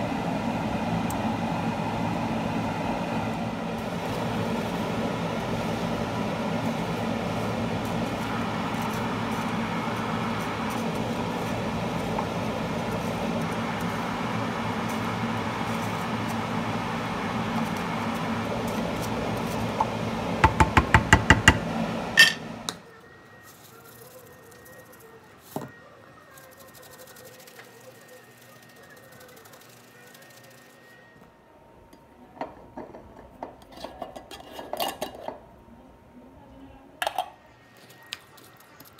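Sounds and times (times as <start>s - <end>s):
steady whooshing hum: 0.0s - 22.7s
wooden spoon stirring rice: 4.9s - 21.7s.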